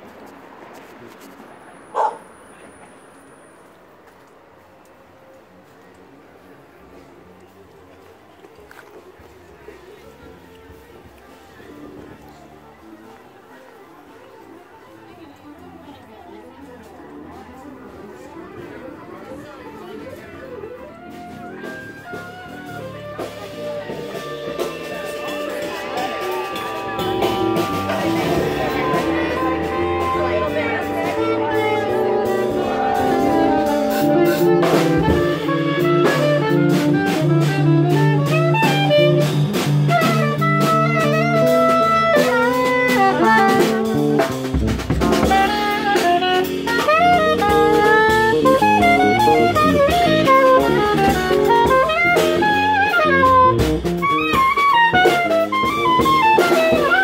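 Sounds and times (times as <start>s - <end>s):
saxophone melody: 20.4s - 57.0s
drum kit: 20.9s - 57.0s.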